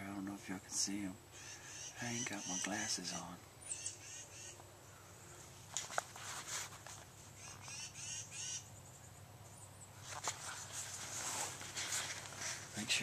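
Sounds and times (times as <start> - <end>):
birds chirping and singing: 1.3 - 5.4, 7.3 - 10.0.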